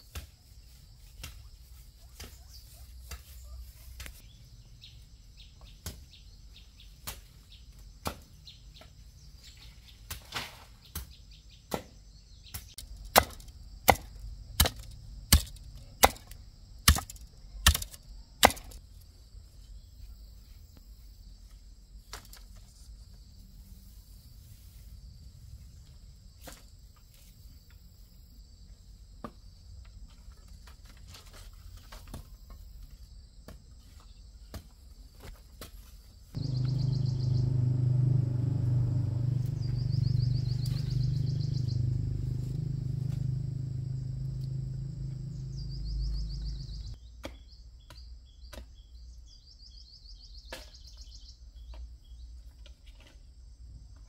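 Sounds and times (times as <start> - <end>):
bamboo poles knocking: 13.0 - 18.8
insects buzzing: 36.4 - 47.1.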